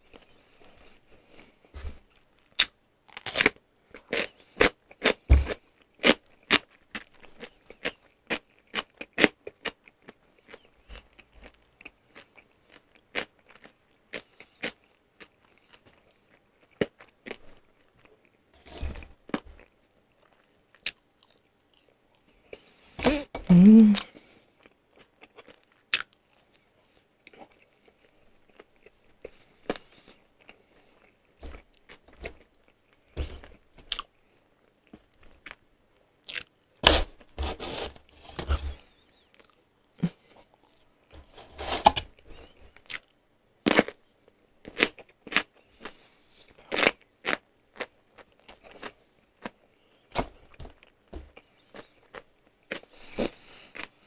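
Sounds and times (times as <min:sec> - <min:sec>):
crunching bites: 0:02.4 - 0:15.8, 0:36.2 - 0:44.0.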